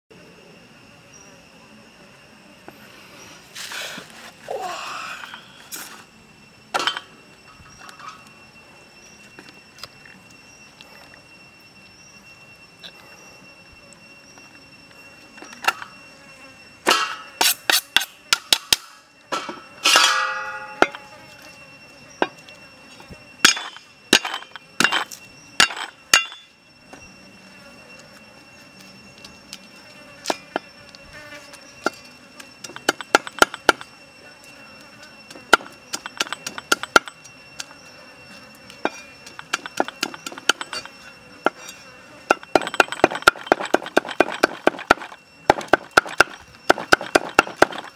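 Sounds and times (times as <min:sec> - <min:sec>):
sharp knocks and clinks: 0:23.4 - 0:26.6, 0:35.3 - 0:37.8, 0:38.8 - 0:47.9.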